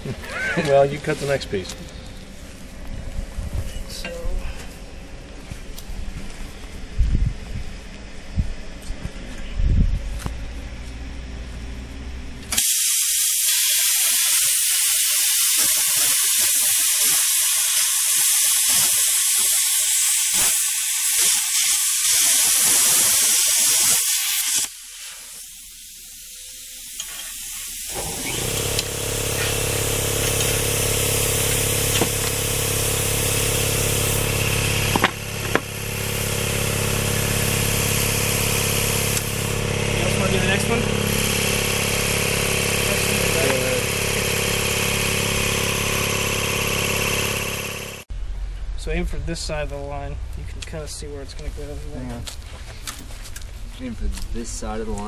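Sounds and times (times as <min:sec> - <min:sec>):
plasma cutter hissing: 0:12.5 - 0:47.7
motor humming: 0:27.9 - 0:48.0.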